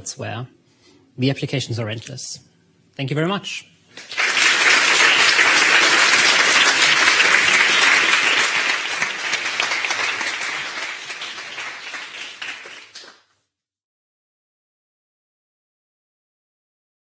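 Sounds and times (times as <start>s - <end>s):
audience applauding: 4.0s - 13.3s.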